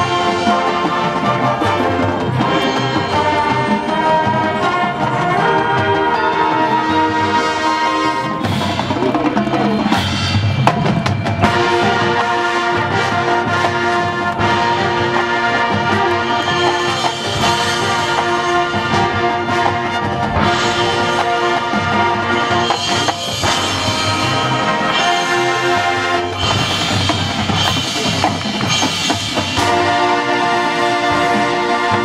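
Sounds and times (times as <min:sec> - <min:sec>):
brass sustained chords: 0:00.0 - 0:08.6, 0:11.4 - 0:26.6, 0:29.6 - 0:32.0
marching band playing: 0:00.0 - 0:32.0.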